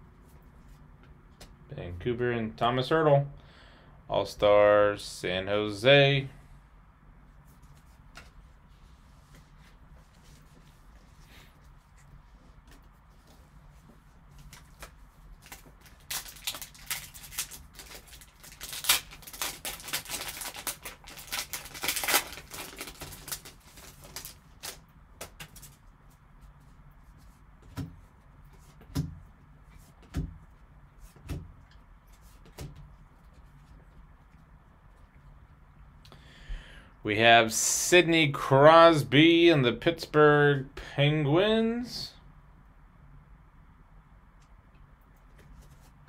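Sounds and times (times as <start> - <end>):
foil wrapper crinkling and tearing: 14.5 - 25.8.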